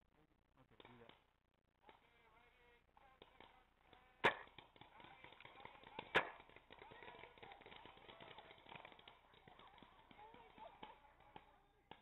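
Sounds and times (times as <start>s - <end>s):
paintball marker shots: 3.0s - 12.0s.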